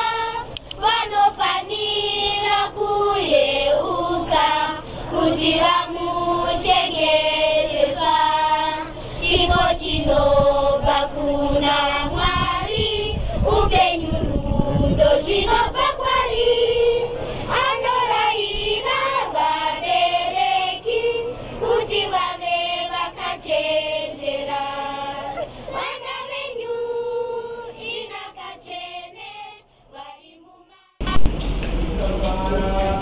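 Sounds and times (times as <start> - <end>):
group of voices singing: 0.0 - 31.3
sudden loud noisy sound: 31.0 - 33.0.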